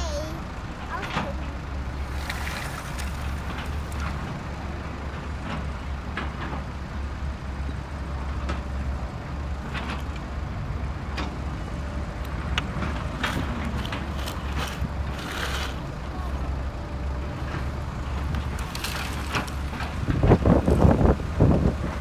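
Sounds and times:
sand and stones rattling: 13.0 - 15.9, 18.4 - 21.1.

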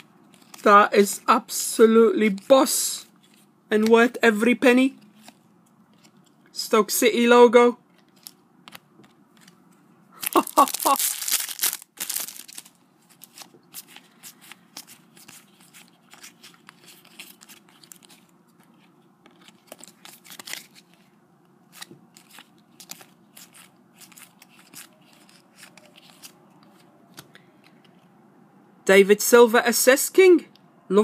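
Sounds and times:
cards clicking and rustling: 0.0 - 0.7, 5.0 - 6.5, 7.9 - 21.1, 21.7 - 28.0
foil packet crackling and tearing: 10.2 - 21.0, 21.7 - 26.4.

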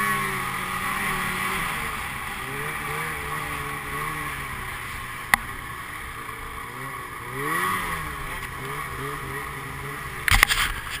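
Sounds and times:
snowmobile engine running: 0.0 - 11.0.

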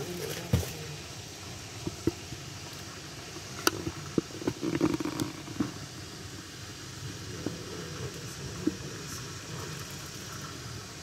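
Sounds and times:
low gurgle: 0.0 - 11.0.

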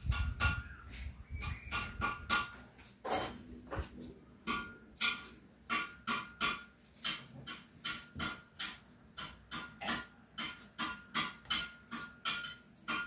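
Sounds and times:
knife scraping potato: 10.4 - 12.4.

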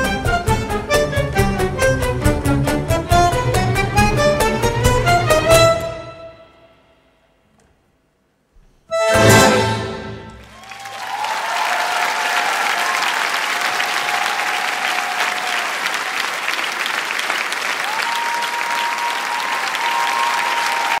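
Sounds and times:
crowd calling out: 9.2 - 16.0
audience applauding: 10.2 - 21.0.

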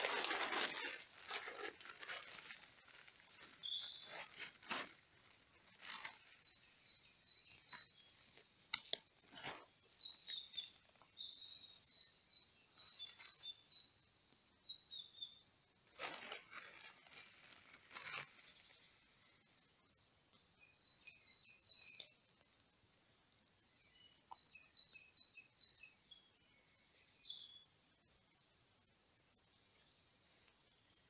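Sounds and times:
plastic poncho rustling: 0.0 - 6.5, 9.2 - 11.0, 15.9 - 18.8
footsteps through undergrowth: 0.0 - 6.6, 15.9 - 19.0
small birds chirping: 0.0 - 31.0.

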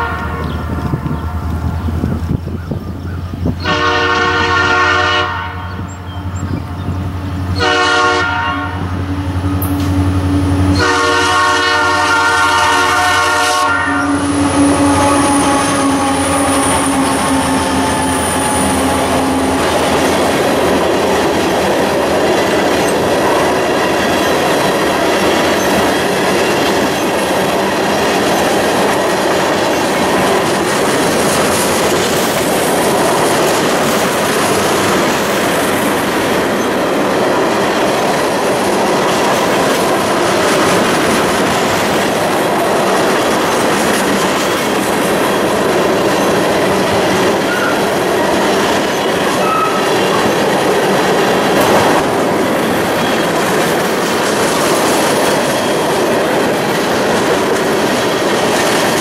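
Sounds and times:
locomotive horn blasts: 0.0 - 0.6, 3.6 - 5.9, 7.5 - 20.4, 49.3 - 50.4
train wheels clattering on rails: 5.4 - 59.0.

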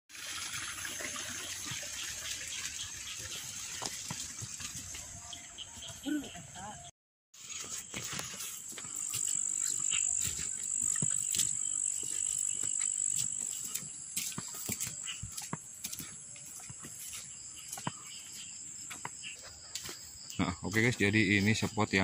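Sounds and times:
footsteps on a dirt path: 3.2 - 6.5, 7.4 - 22.0
high-pitched insect trill: 7.4 - 22.0.

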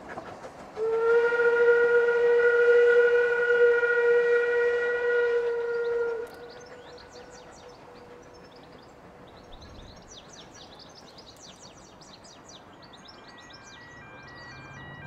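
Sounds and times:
train whistle: 0.8 - 8.5
light outdoor hiss: 5.5 - 13.2
birds chirping and singing: 5.5 - 14.9.

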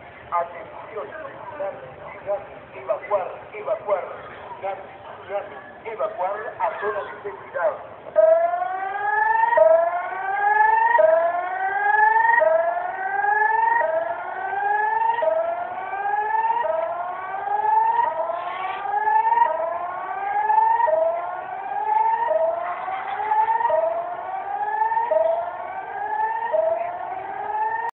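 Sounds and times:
whooping emergency siren: 8.2 - 28.0.

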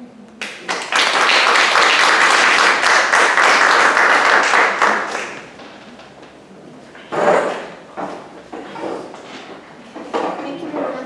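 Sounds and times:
audience applauding: 0.4 - 5.7.

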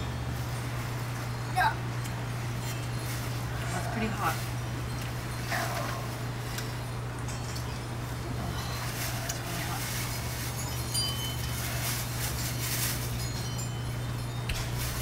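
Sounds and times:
steady low hum: 0.0 - 15.0
high-pitched clinks and tinkles: 4.6 - 9.2, 9.8 - 15.0.

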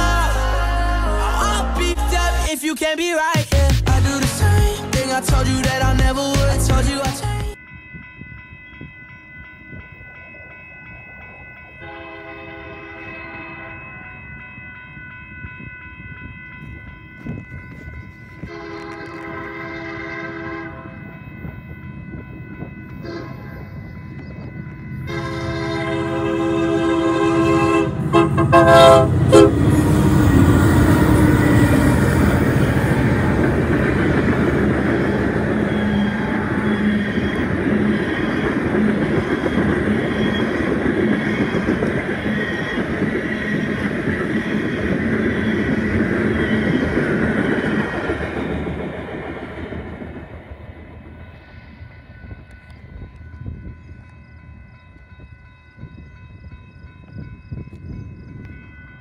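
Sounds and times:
faint steady ringing tone: 7.6 - 26.6, 30.6 - 59.0
train horn blast: 11.8 - 13.9, 18.4 - 21.1, 23.0 - 23.7, 25.0 - 32.0
freight train rumbling and clattering: 15.5 - 54.3.

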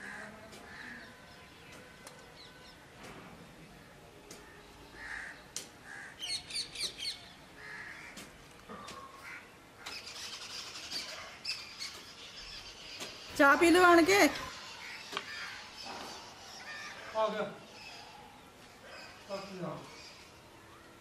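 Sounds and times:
crows cawing: 0.0 - 1.1, 4.4 - 6.4, 7.6 - 10.1, 14.5 - 17.4
small birds chirping: 0.0 - 21.0.

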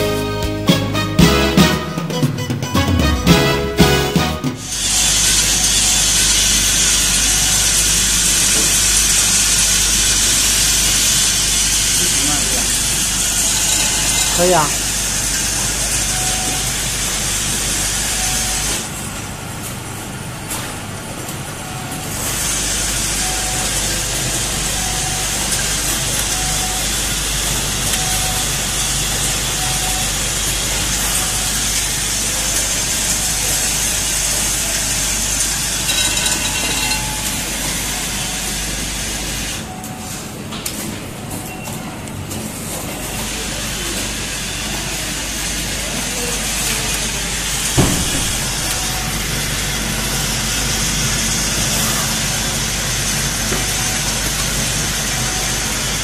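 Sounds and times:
soldering machine air hiss: 4.6 - 18.8.

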